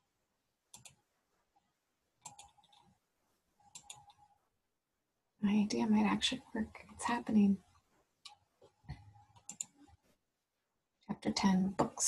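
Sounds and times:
faint computer clicking: 0.7s - 1.0s, 2.2s - 3.0s, 3.6s - 4.3s, 8.2s - 9.9s.

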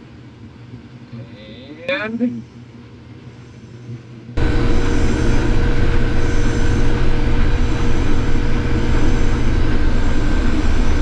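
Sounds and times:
combine harvester running: 4.4s - 11.0s
machine whine: 4.4s - 11.0s.

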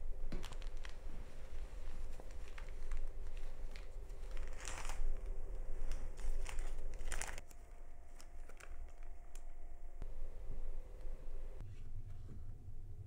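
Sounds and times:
rustling and crinkling: 0.0s - 9.8s.

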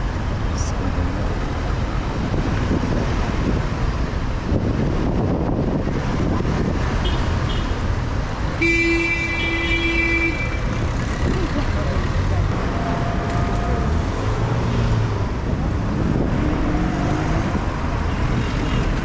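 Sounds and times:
passing street traffic: 0.0s - 19.0s
vehicle horn: 8.6s - 10.8s.

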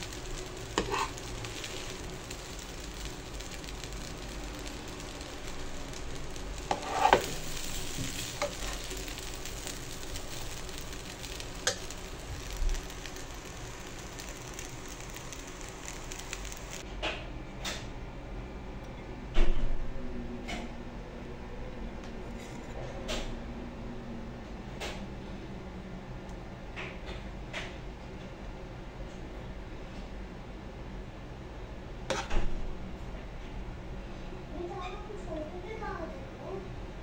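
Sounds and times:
rice sizzling in a pan: 0.0s - 16.9s, 32.1s - 33.1s
metal spoon scraping pan: 0.7s - 1.9s, 6.6s - 9.0s.

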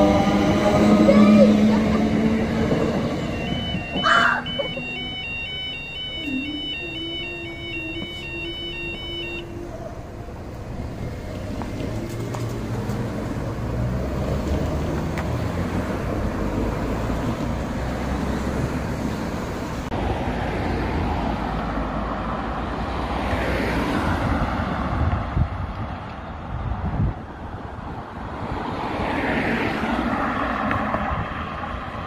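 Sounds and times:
road traffic: 0.0s - 32.0s
two-tone crossing alarm: 2.4s - 11.3s.

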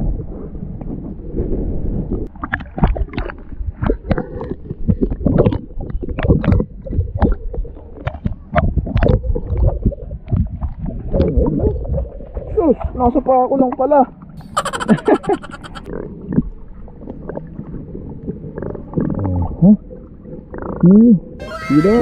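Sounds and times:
underwater water churning: 2.3s - 12.5s.

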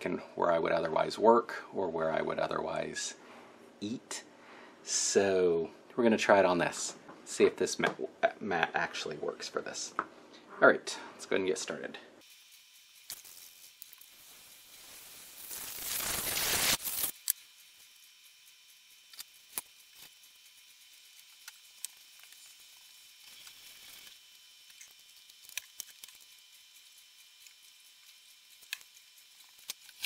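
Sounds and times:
aerosol can spraying foam: 12.2s - 17.2s.

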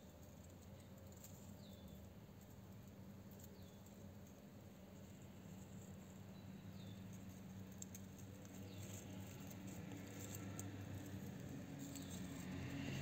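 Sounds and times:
low steady hum: 0.0s - 13.0s
tortoise chewing strawberry: 5.2s - 13.0s.

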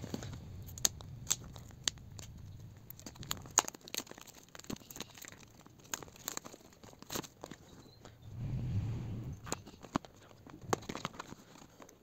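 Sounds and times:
plastic shrink wrap crinkling and tearing: 0.0s - 7.8s.

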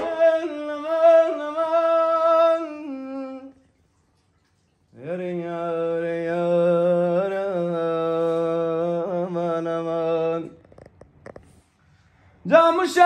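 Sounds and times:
man singing a long note: 0.0s - 3.5s.

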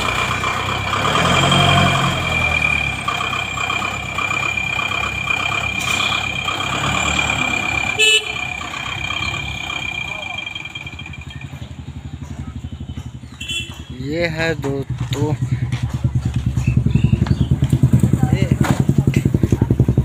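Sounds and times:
diesel engine running: 0.0s - 20.0s
high-pitched whine: 1.4s - 12.0s
short horn toot: 7.9s - 8.5s.

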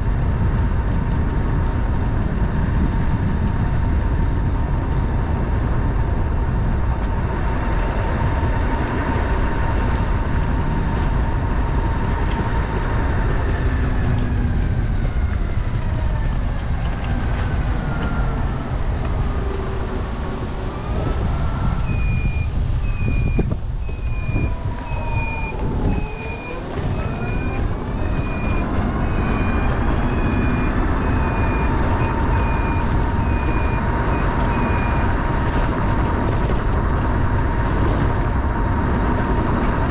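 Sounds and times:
trike engine running: 0.0s - 39.9s
wind noise: 0.0s - 39.9s
high electronic beep: 21.8s - 35.1s.

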